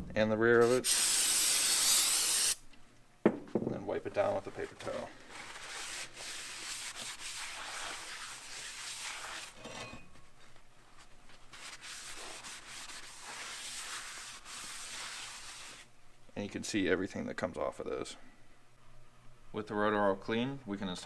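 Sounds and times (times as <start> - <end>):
paper towel wiping metal: 4.5 - 9.6, 11.5 - 15.9.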